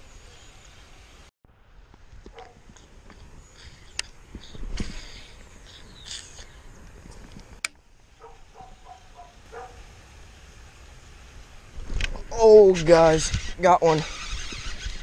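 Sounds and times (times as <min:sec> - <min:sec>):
line hissing off reel spool: 0:02.8 - 0:06.7, 0:08.2 - 0:15.0.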